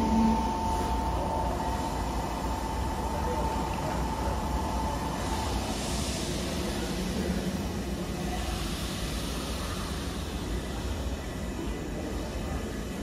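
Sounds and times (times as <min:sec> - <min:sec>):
steady high tone: 0:00.0 - 0:06.7
electric train rumble: 0:00.0 - 0:13.0
hiss: 0:00.0 - 0:13.0.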